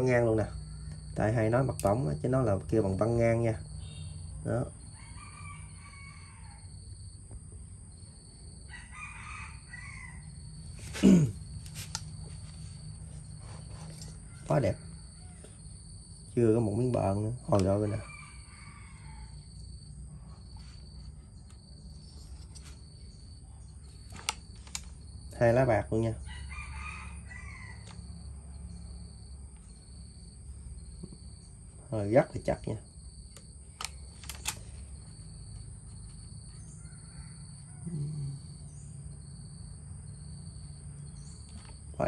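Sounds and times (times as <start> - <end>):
crickets chirring: 0.0 - 42.0
small clicks: 24.0 - 25.1, 33.3 - 34.9.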